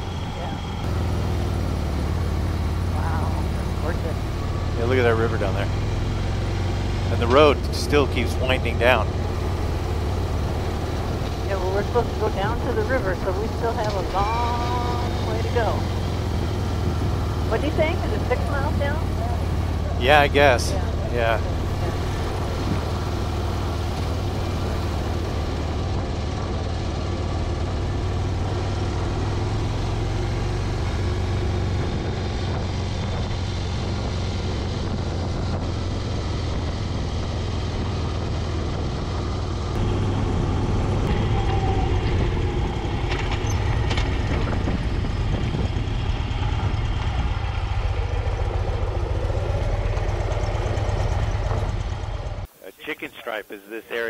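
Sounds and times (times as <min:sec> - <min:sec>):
motorcycle engine running: 0:00.0 - 0:52.5
wind on microphone: 0:40.3 - 0:47.9.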